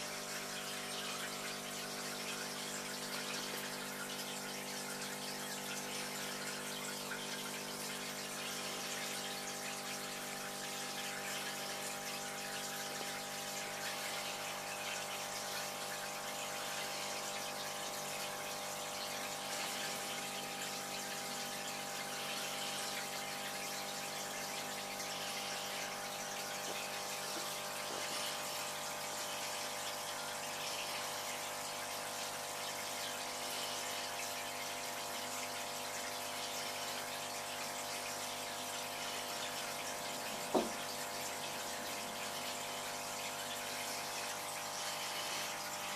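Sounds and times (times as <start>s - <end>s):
mechanical pump hum: 0.0s - 45.9s
water rushing in aquarium filter: 0.0s - 45.9s
short knock: 40.5s - 40.8s.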